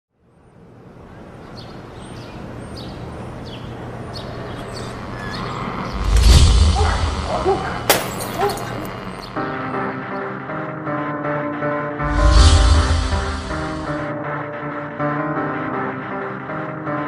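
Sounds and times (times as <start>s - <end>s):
ambience: 2.4s - 9.8s, 12.0s - 14.1s
deep bass boom: 12.0s - 14.0s
sharp hit: 12.0s - 14.0s.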